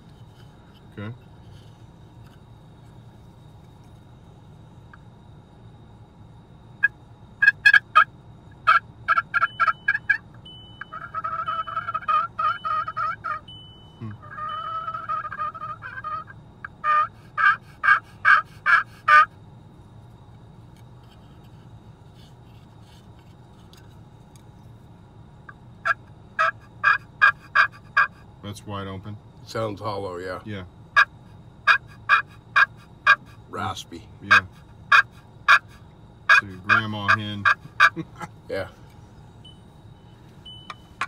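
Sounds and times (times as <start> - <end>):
turkey call hen yelps: 6.8 - 10.2, 10.8 - 19.4, 25.8 - 28.2, 31.0 - 33.4, 34.3 - 38.1.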